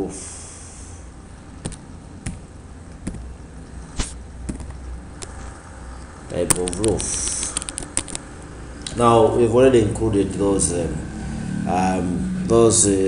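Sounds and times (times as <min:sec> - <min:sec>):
low steady hum: 0:00.0 - 0:13.0
keyboard key clicks: 0:06.5 - 0:08.2.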